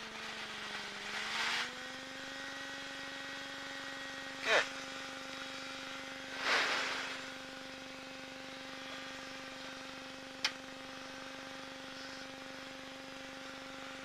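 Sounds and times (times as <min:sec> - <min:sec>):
ultralight engine idling: 0:04.2 - 0:14.0.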